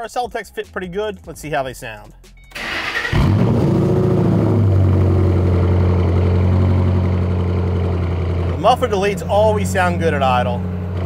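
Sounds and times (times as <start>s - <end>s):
car engine starting and idling: 2.4s - 11.0s.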